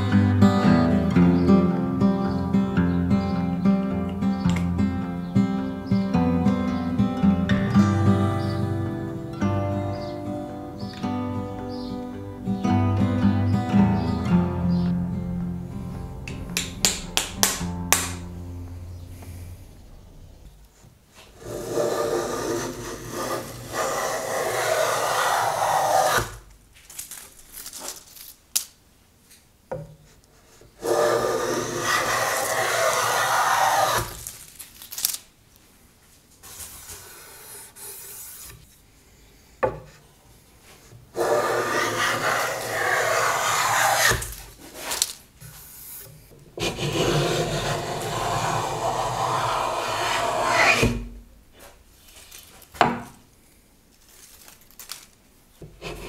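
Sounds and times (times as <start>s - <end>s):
sharp knocks: 16.1s - 19.6s
hand plane rasping on wood: 21.4s - 26.2s, 30.8s - 34.1s, 41.2s - 44.3s, 46.6s - 51.0s, 55.8s - 56.0s.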